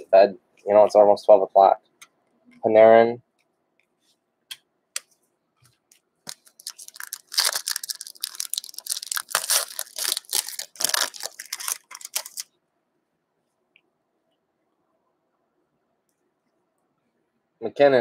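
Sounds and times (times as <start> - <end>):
plastic wrapper tearing and crinkling: 6.3 - 12.5.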